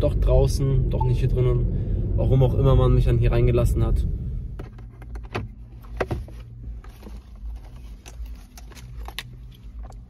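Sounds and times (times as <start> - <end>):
low steady hum: 0.0 - 10.0
glove box latch clicks and knocks: 4.6 - 7.2.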